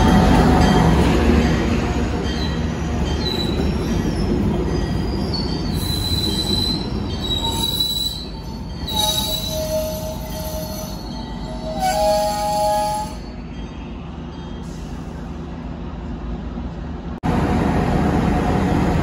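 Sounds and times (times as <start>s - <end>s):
train coaches rumbling past: 0.0s - 19.0s
high-pitched wheel squeals: 2.3s - 13.4s.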